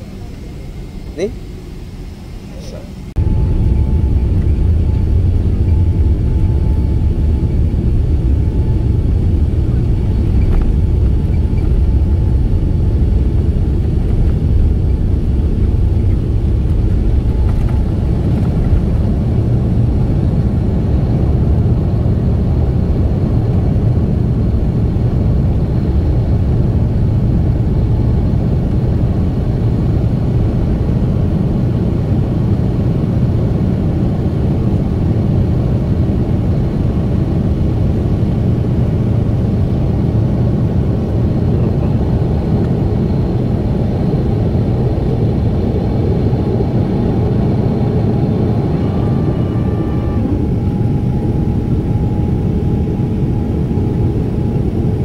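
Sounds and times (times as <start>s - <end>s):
jet engines rumbling in cabin: 0.0s - 55.0s.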